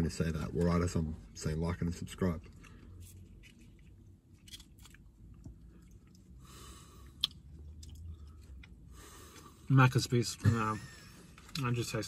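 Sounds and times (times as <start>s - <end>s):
close-up chewing: 2.5s - 6.4s.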